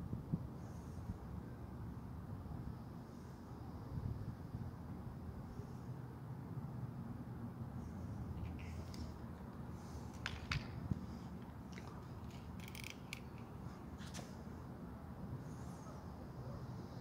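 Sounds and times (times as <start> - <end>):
sunglasses clicking and scraping: 10.0 - 14.2.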